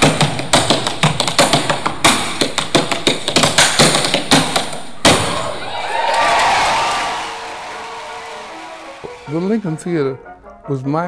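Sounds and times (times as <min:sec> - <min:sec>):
tap shoes striking stage floor: 0:00.0 - 0:05.2.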